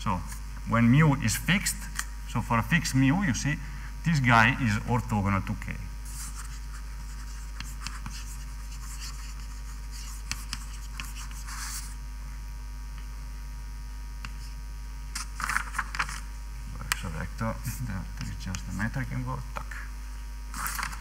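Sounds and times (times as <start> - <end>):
low mains hum: 0.0 - 21.0
writing scratches on a board: 6.0 - 12.0.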